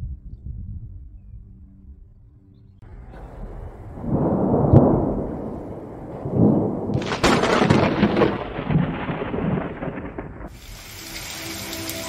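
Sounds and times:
thunder rumbling and cracking: 2.8 - 10.8
loud hiss: 10.5 - 12.0.

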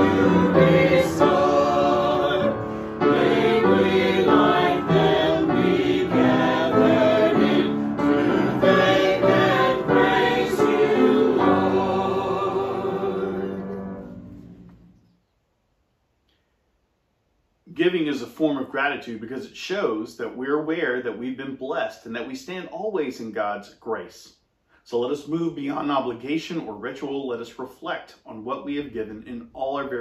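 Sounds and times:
church choir singing a hymn: 0.0 - 14.6.

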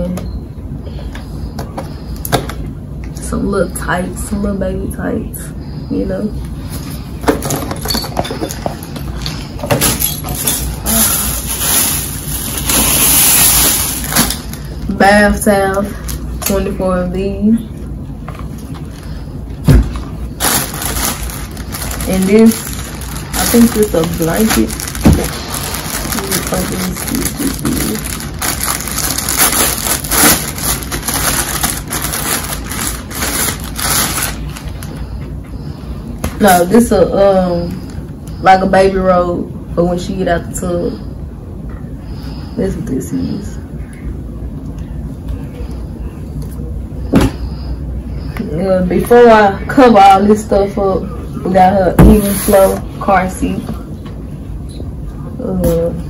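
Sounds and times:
bag rustling and crinkling: 7.5 - 14.7, 19.8 - 35.0.

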